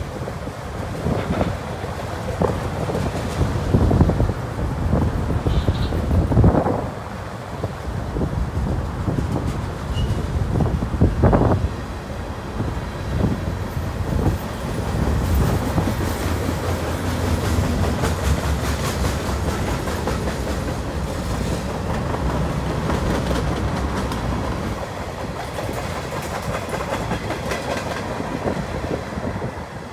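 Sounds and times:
freight train rolling past: 0.0 - 29.9
wheels clicking over rail joints: 13.2 - 29.4.

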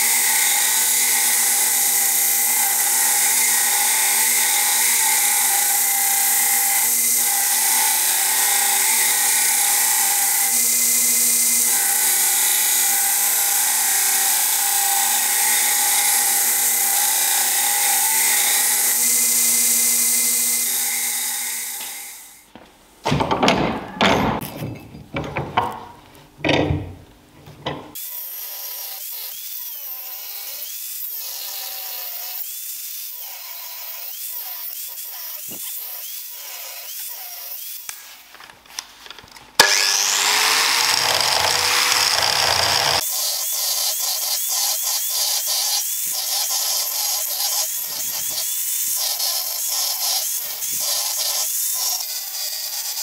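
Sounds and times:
angle grinder cutting steel: 0.0 - 22.4, 28.0 - 38.0, 39.6 - 53.0
knocks and handling of metal: 23.0 - 28.0.

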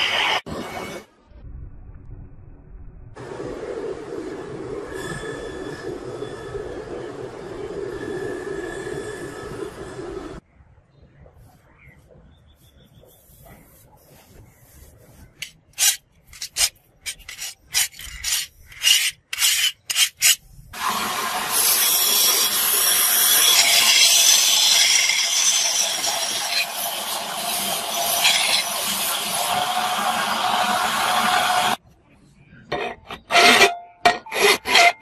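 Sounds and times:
file scraping steel blade: 15.3 - 20.4, 21.5 - 29.8, 32.7 - 35.0
belt grinder grinding metal: 15.8 - 31.8.

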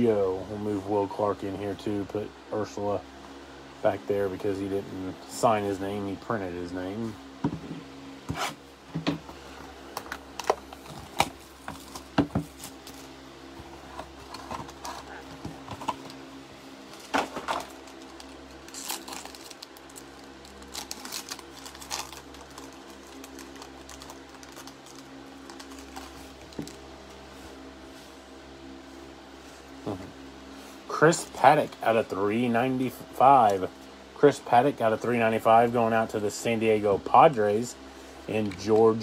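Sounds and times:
steady low hum: 0.0 - 39.0
foil pack crinkling and tearing: 10.0 - 13.1, 16.9 - 26.8.

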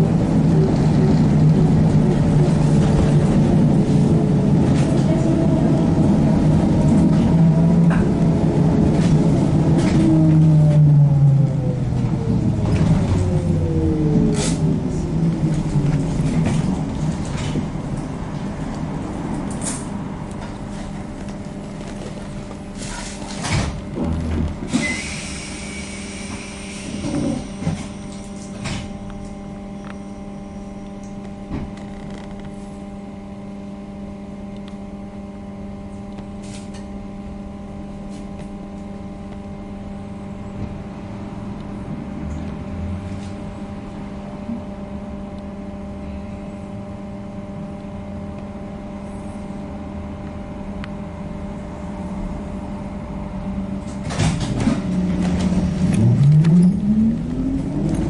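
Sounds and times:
electric hum in bus cabin: 0.0 - 58.0
compressed air hiss: 24.8 - 27.0.

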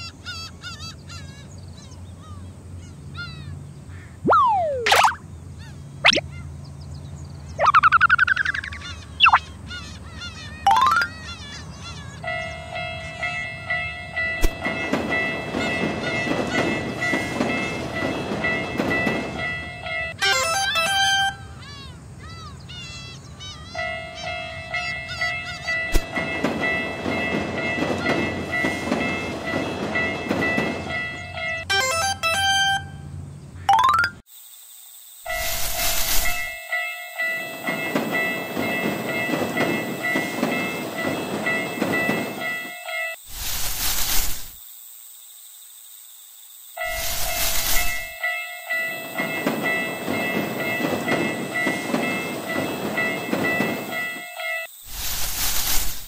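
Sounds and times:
railroad crossing alarm dinging: 10.7 - 21.6, 23.5 - 33.3, 35.3 - 43.2, 46.8 - 54.8
train wheels clattering over rails: 13.4 - 20.2, 25.8 - 31.6, 37.5 - 44.5, 48.9 - 54.4.

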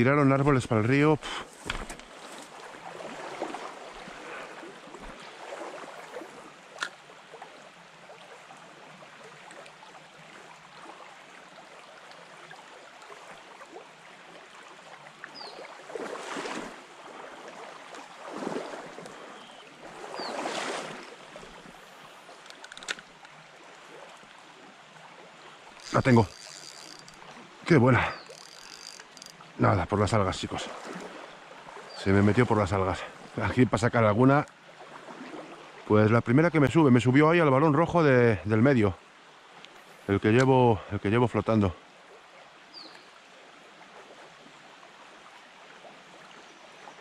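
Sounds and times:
river water running: 0.0 - 47.0
water swishing: 0.5 - 35.9
faint clicks: 22.3 - 23.4, 25.8 - 27.4, 28.1 - 29.4, 39.6 - 40.5.

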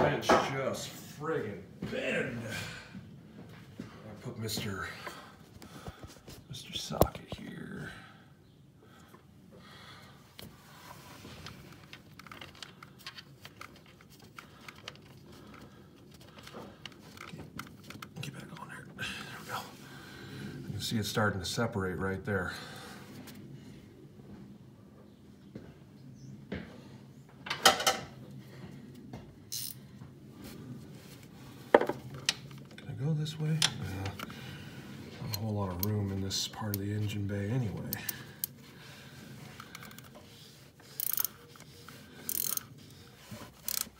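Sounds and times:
faint handling noise: 10.3 - 18.9, 26.6 - 43.9
wrench and socket clinking: 29.5 - 29.8, 42.3 - 42.7, 43.6 - 43.9.

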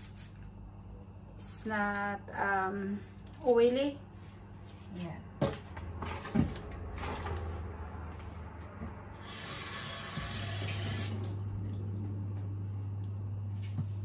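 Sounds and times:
steady low hum: 11.1 - 14.0.

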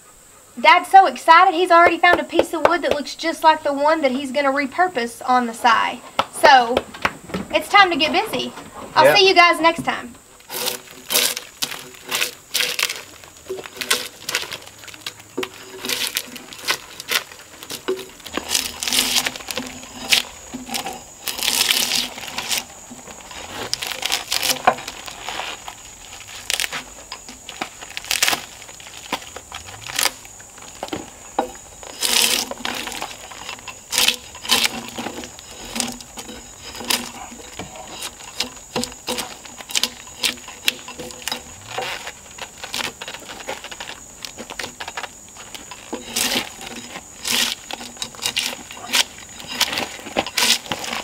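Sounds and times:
drawknife scraping bark: 10.4 - 51.0.

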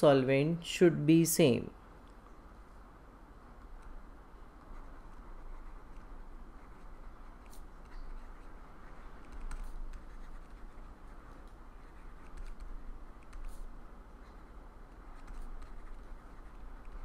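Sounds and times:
low steady hum: 0.0 - 17.0
pen scratching on paper: 4.6 - 17.0.

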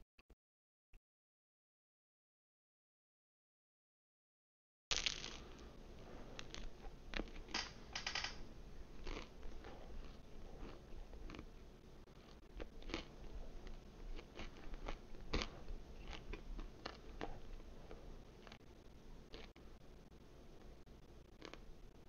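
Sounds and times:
crunchy chewing: 5.4 - 7.5, 8.9 - 19.8, 20.6 - 22.0.

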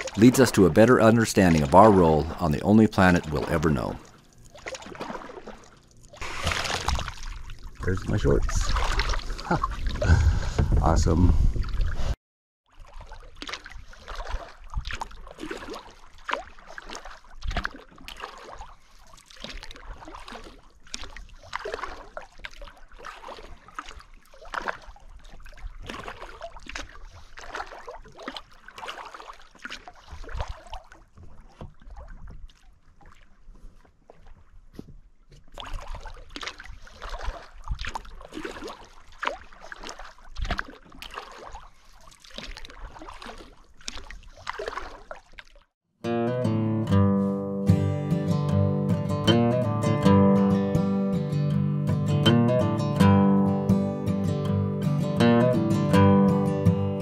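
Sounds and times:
sharp splashes: 0.0 - 10.3, 12.7 - 33.2, 35.5 - 45.7
water sloshing around a kayak: 0.0 - 45.8.

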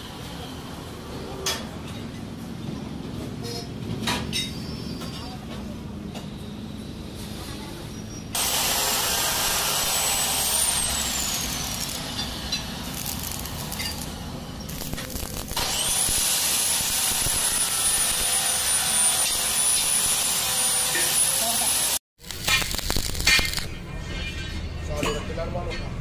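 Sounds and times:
welding arc hissing and crackling: 8.4 - 23.7.

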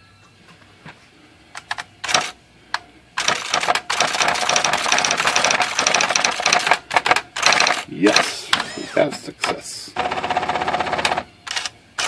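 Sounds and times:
electronic typewriter clattering: 1.7 - 2.3, 3.2 - 11.7.

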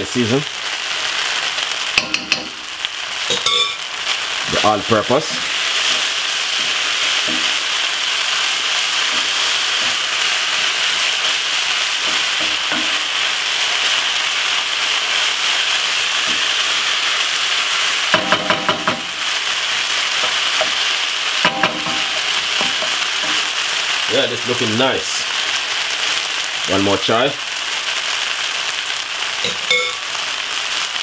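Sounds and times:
meat sizzling in a frying pan: 0.0 - 31.0
wooden spoon stirring: 5.2 - 8.0.

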